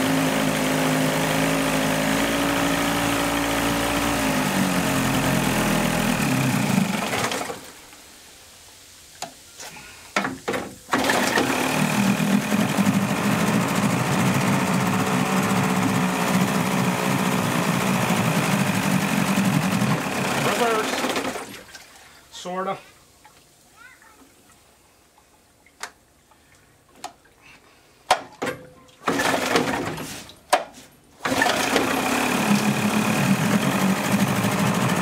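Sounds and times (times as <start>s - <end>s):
outboard motor running: 0.0s - 7.7s, 10.9s - 21.6s, 29.1s - 30.0s, 31.2s - 35.0s.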